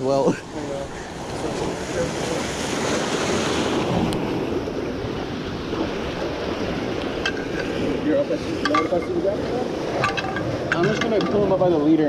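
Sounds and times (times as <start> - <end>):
surf washing against rocks: 0.0 - 12.0
wind buffeting microphone: 0.0 - 12.0.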